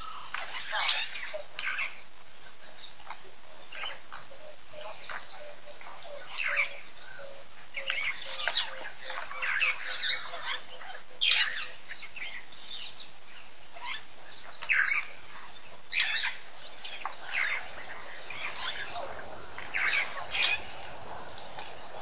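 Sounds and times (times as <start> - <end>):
bird chirps and squawks: 15.9 - 21.3.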